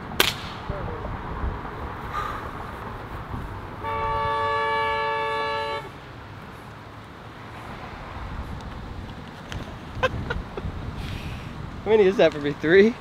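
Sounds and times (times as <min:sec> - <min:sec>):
street traffic rumble: 0:00.0 - 0:13.0
two-tone vehicle horn honk: 0:03.8 - 0:05.9.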